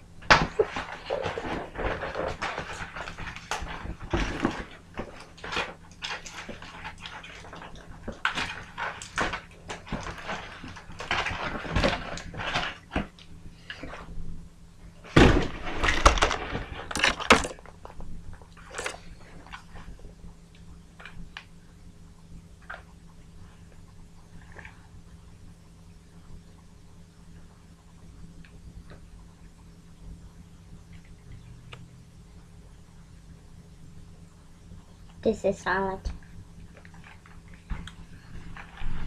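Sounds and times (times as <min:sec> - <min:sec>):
packaging rustling and crinkling: 0:00.2 - 0:14.2, 0:15.0 - 0:20.0, 0:36.7 - 0:39.0.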